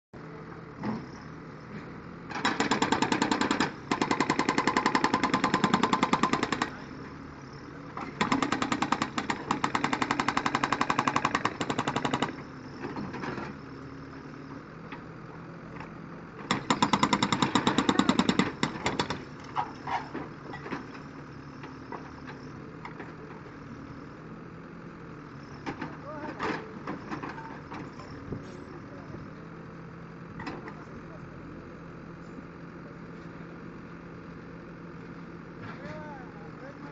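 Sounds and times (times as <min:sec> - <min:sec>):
diesel engine running: 0:00.2 - 0:36.9
hydraulic breaker hammering concrete: 0:02.3 - 0:06.8, 0:08.2 - 0:12.4, 0:16.5 - 0:19.2.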